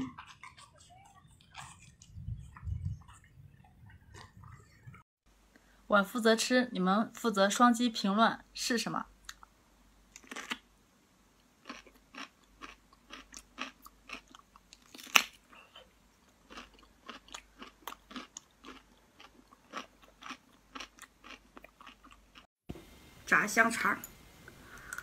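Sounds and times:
person chewing food: 0.0 - 4.6, 10.1 - 10.6, 11.4 - 22.5.

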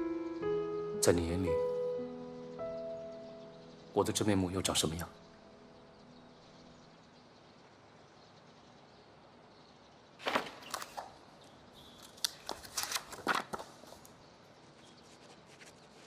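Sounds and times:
paper pad rustling: 10.2 - 11.2, 12.0 - 16.0
pen scratching on paper: 14.8 - 16.0.

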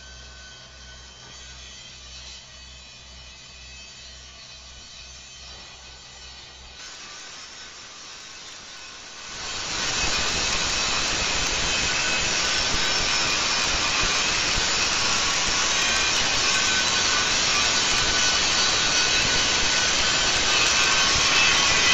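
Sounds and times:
angle grinder grinding steel: 0.0 - 21.9.

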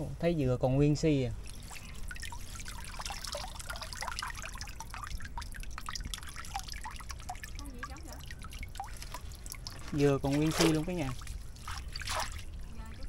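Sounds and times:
water trickling and dripping: 1.0 - 13.0.

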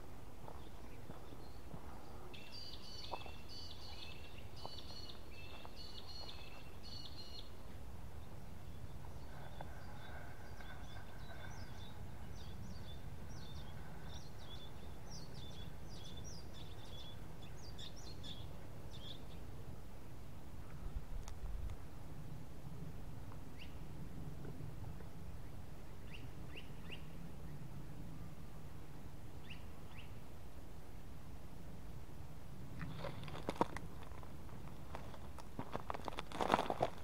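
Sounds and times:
birds chirping: 0.4 - 19.5.

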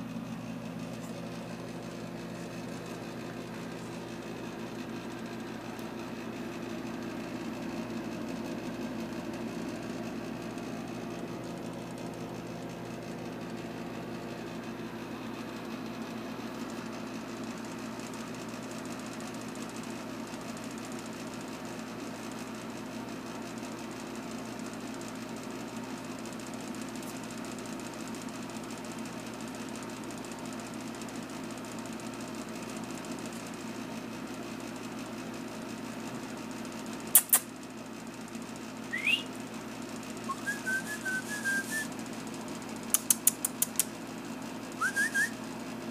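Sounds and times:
low mechanical hum: 0.0 - 45.9
sharp clicks: 42.9 - 43.9.

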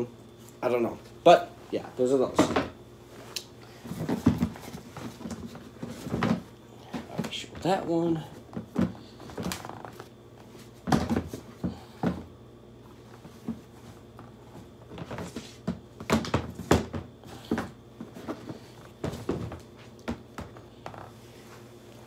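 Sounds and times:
handling knocks and thumps: 3.8 - 10.1, 10.7 - 12.3, 13.2 - 21.1.

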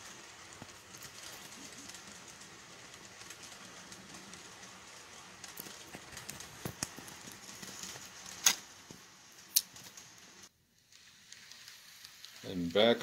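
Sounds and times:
train wheels clicking over rail joints: 0.0 - 9.2.

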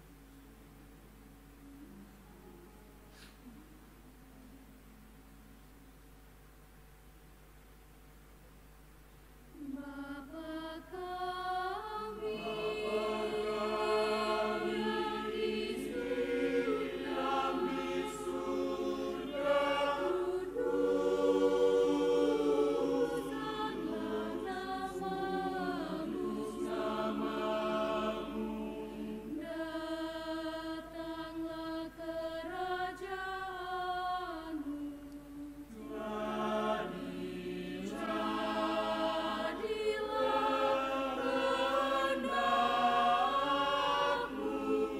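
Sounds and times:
mixed choir singing: 9.6 - 44.9.

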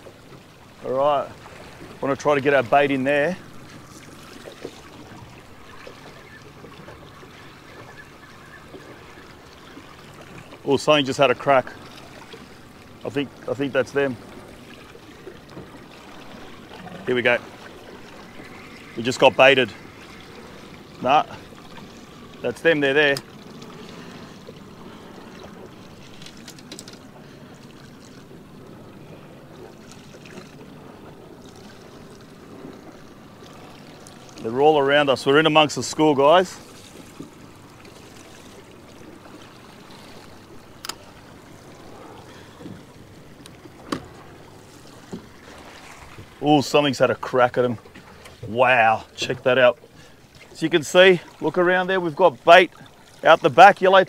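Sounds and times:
water lapping against boat hull: 0.0 - 54.0.

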